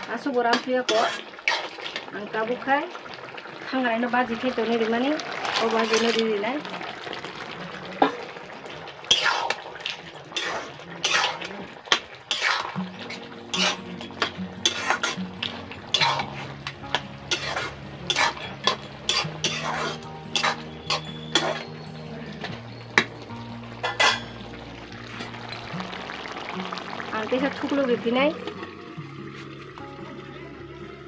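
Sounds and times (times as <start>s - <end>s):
metal spoon scraping a pot: 0.5s - 2.0s, 5.4s - 6.3s, 9.1s - 23.2s, 23.8s - 24.5s
background music with held notes: 12.5s - 31.0s.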